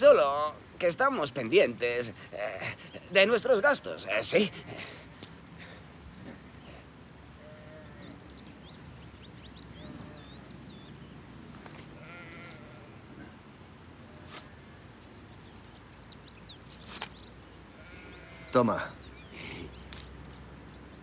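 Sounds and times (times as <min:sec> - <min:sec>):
sheep bleating: 0:07.4 - 0:08.2, 0:11.9 - 0:13.3, 0:17.8 - 0:18.9
high chirping calls: 0:07.7 - 0:11.4.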